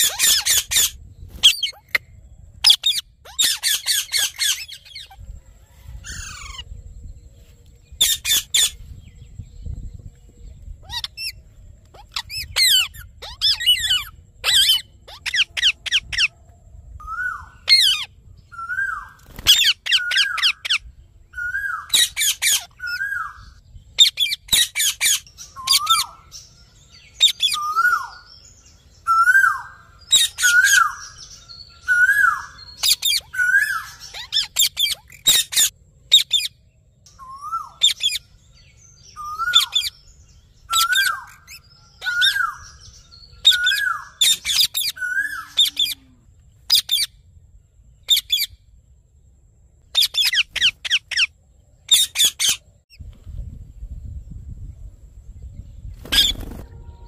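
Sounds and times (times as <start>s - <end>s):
parakeets chirping: 0.0s - 2.0s, 2.6s - 5.2s, 6.1s - 6.7s, 8.0s - 8.8s, 10.7s - 16.3s, 17.1s - 36.6s, 37.2s - 46.0s, 46.6s - 47.1s, 48.0s - 48.5s, 49.8s - 52.6s, 56.0s - 56.7s
parakeets screeching: 0.0s - 2.0s, 2.6s - 5.2s, 6.0s - 6.7s, 8.0s - 8.8s, 10.8s - 16.3s, 17.1s - 20.8s, 21.4s - 26.3s, 27.1s - 28.3s, 29.1s - 36.5s, 37.2s - 38.3s, 39.2s - 40.0s, 40.6s - 46.0s, 46.7s - 47.1s, 48.1s - 48.5s, 49.9s - 51.3s, 51.9s - 52.6s, 56.0s - 56.7s.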